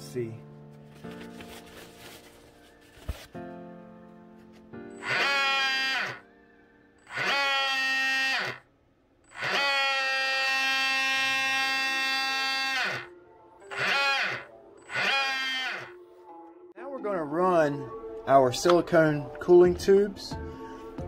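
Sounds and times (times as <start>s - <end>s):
electric motor whining: 5.0s - 6.2s, 7.0s - 8.6s, 9.3s - 13.1s, 13.7s - 16.0s.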